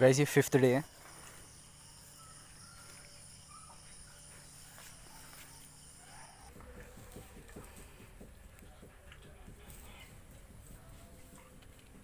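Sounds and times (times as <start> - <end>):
insects chirring: 0.0 - 6.5.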